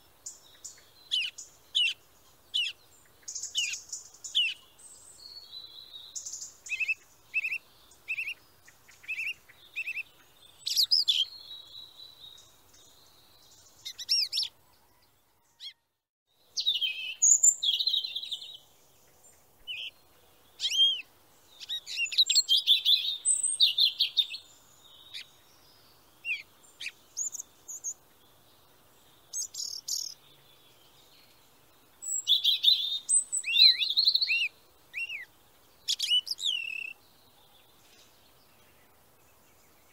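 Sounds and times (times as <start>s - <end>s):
songbirds singing and chirping: 0.0s - 39.9s.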